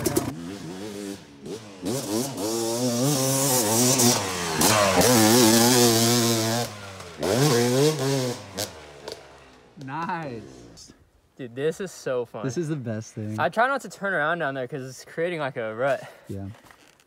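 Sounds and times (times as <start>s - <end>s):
dirt bike engine revving: 0.0s - 10.8s.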